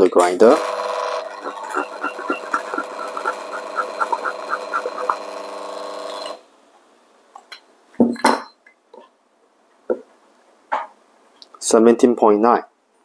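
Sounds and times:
coffee grinder motor running: 0.5 - 6.4
bellows puffs and clicks: 1.3 - 6.3.

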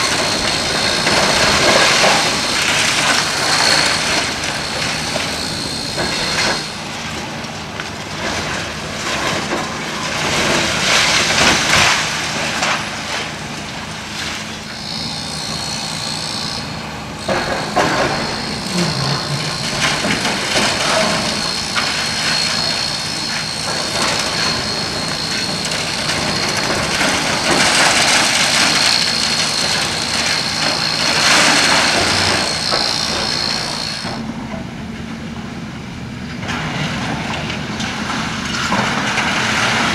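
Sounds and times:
rubble crashing and grinding: 0.0 - 6.7, 17.3 - 34.0, 36.5 - 39.9
steady high whine: 0.0 - 36.5
diesel engine running: 0.0 - 39.9.

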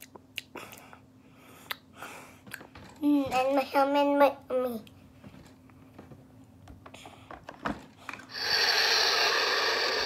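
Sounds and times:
toy speaker whooshing hiss: 8.3 - 10.0.

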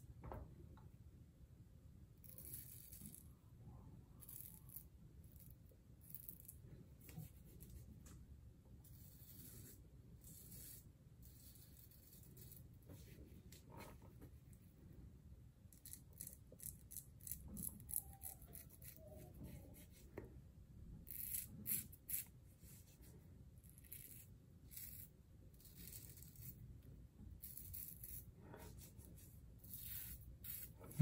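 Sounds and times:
razor scraping beard stubble: 2.2 - 3.3, 8.9 - 12.7, 15.7 - 20.0, 21.0 - 22.8, 23.6 - 26.6, 27.4 - 31.0.

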